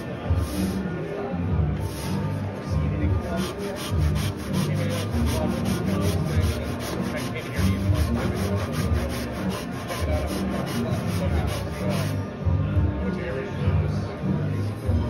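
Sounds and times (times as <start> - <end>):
hand saw cutting wood: 3.3 - 12.2.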